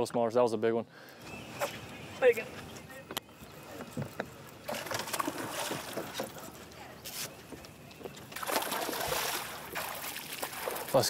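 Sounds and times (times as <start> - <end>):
light water noise: 1.0 - 11.0
fish thrashing and splashing: 4.5 - 6.7, 8.0 - 11.0.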